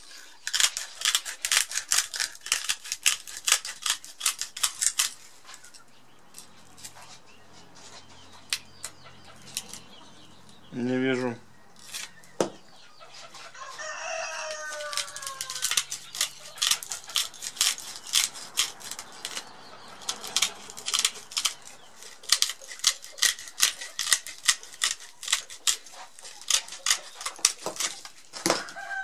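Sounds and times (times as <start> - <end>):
rooster crowing: 13.5 - 15.9, 28.5 - 29.0.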